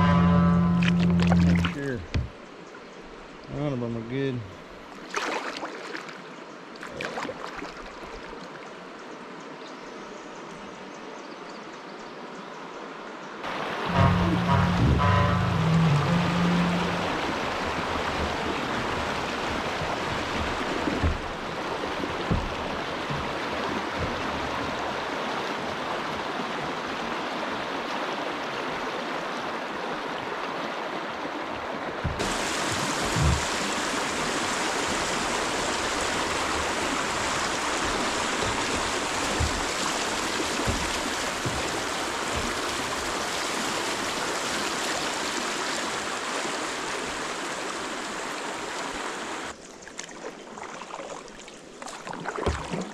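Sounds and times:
dull knocks: 0.0s - 2.4s, 13.9s - 25.0s, 32.0s - 34.4s, 35.1s - 43.4s
water rushing over rocks: 0.0s - 2.4s, 13.4s - 49.6s.

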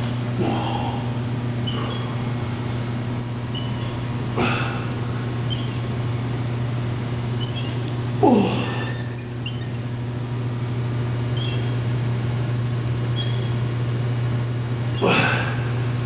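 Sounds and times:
steady low hum: 0.0s - 16.0s
exercise machine squeaking: 1.6s - 2.3s, 3.5s - 4.3s, 5.4s - 5.9s, 7.4s - 7.9s, 8.8s - 10.0s, 11.2s - 11.8s, 13.1s - 13.6s, 14.9s - 15.4s.

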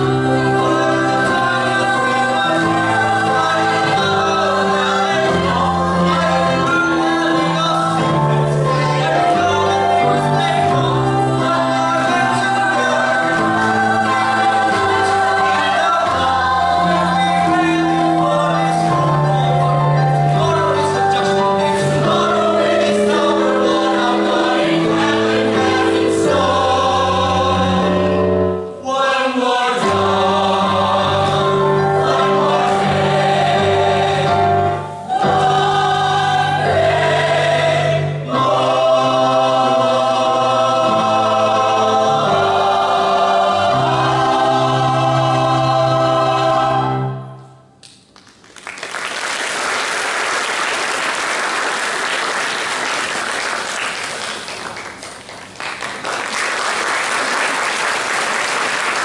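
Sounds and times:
mixed choir singing: 0.0s - 47.6s
audience applauding: 48.1s - 59.0s.

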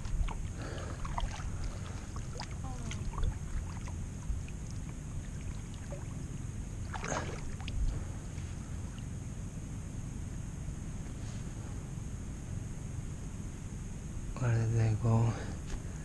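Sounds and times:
paddle drips and splashes: 0.0s - 8.0s
low steady rumble: 0.0s - 16.0s.

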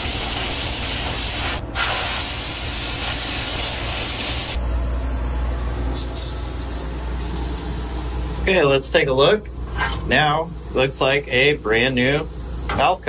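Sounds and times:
sandblasting gun hissing: 0.0s - 8.7s.

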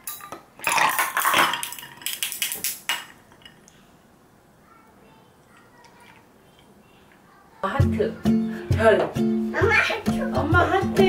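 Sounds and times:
ice cubes clinking in glass: 0.0s - 3.6s.

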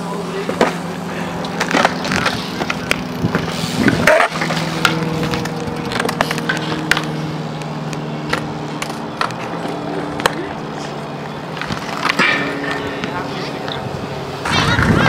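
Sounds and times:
skateboard wheels rolling on concrete: 0.0s - 15.0s
wheels clicking over seams: 0.0s - 15.0s
skateboard scrape: 0.5s - 7.2s.

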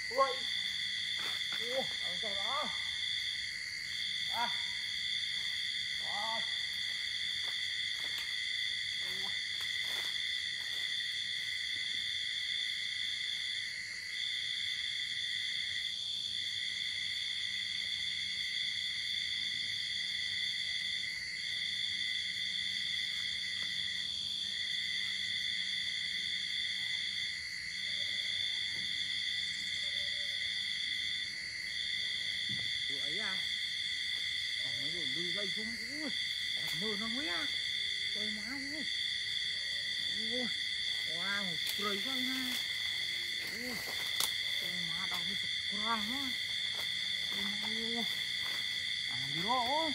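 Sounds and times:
cicadas droning: 0.0s - 49.9s.

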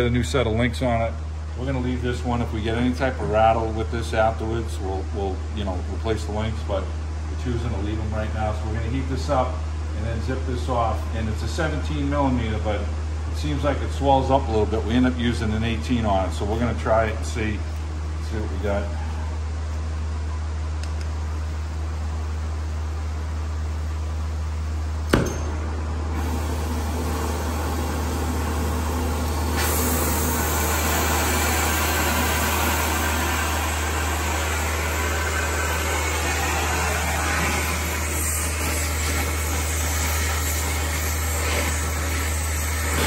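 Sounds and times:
low hum: 9.6s - 42.0s
torch lighting pop: 25.1s - 25.7s
torch flame hissing: 26.1s - 43.0s.

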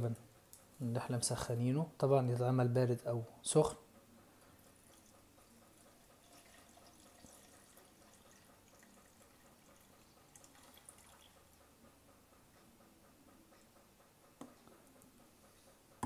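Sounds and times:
milk pouring into blender jar: 5.8s - 11.4s.

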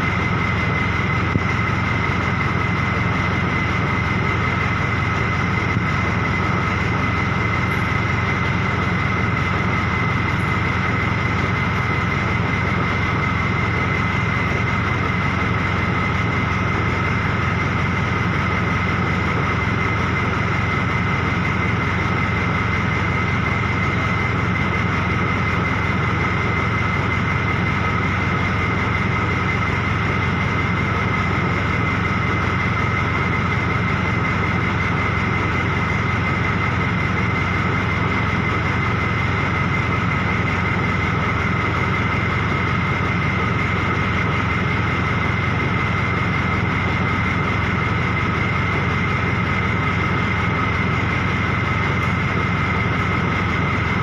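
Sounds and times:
engine idling: 0.0s - 54.0s
high whine: 0.0s - 54.0s.

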